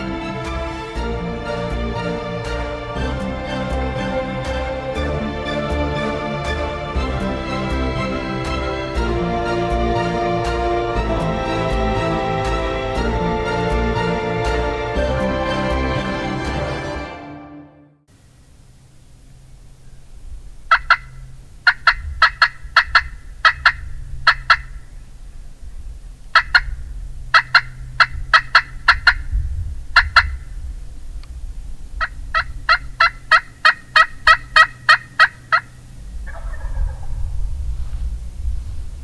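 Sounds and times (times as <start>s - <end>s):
rough low turkey call: 19.7s - 25.4s, 26.3s - 30.6s, 32.0s - 38.0s
wild turkey yelps: 20.7s - 24.9s, 26.3s - 29.3s, 30.0s - 30.4s, 32.0s - 37.2s.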